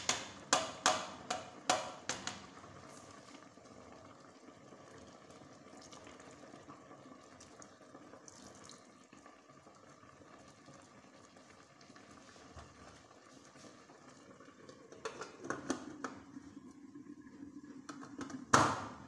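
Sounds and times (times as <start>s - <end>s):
water trickling into a pot: 0.1s - 18.6s.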